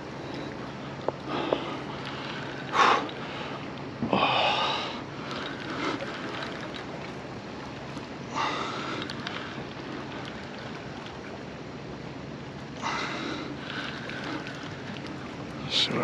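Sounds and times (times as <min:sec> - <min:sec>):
man breathing hard: 0:01.3 - 0:06.1.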